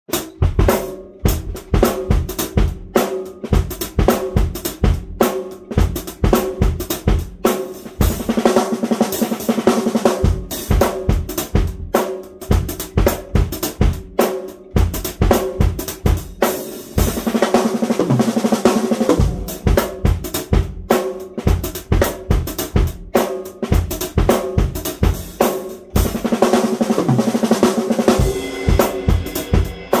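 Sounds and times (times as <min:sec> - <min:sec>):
drum kit played with sticks: 0:00.0 - 0:30.0
fast strokes on ringing toms: 0:00.2 - 0:30.0.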